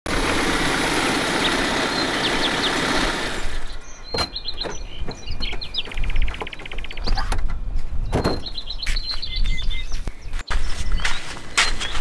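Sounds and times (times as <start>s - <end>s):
diesel engine running: 0.1s - 4.7s.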